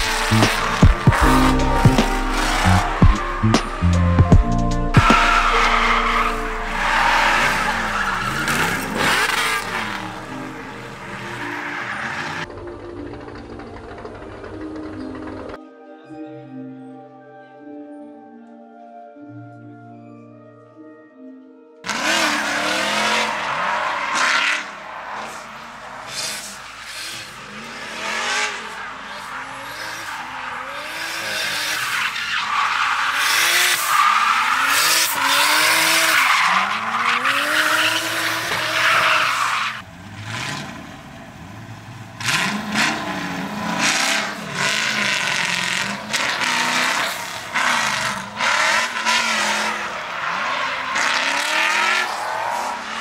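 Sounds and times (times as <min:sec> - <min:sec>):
car engines revving: 0:00.0 - 0:15.6, 0:21.8 - 0:53.0
tyres squealing: 0:04.9 - 0:12.5, 0:21.9 - 0:39.8.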